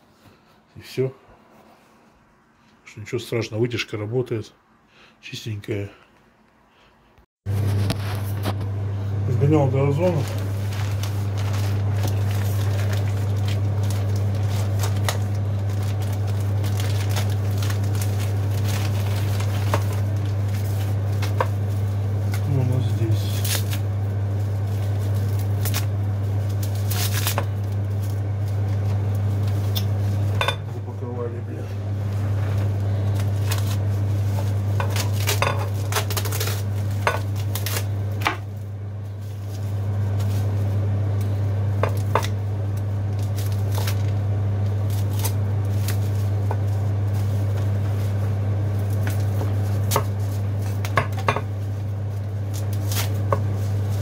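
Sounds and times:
steady low hum: 0.0 - 54.0
dishes clinking and knocking: 30.4 - 30.7.

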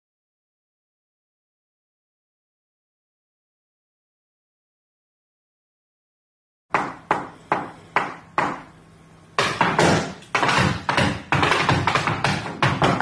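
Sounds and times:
tap shoes on wooden stage: 9.4 - 13.0.

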